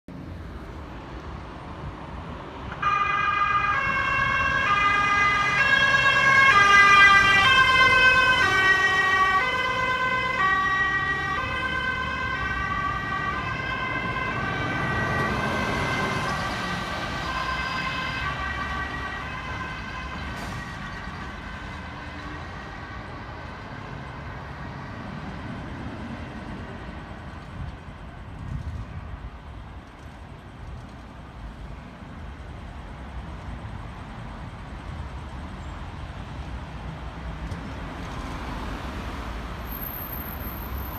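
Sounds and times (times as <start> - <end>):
engine and tyre noise: 0.1 - 40.9
two-tone fire truck sirens: 2.7 - 28.0.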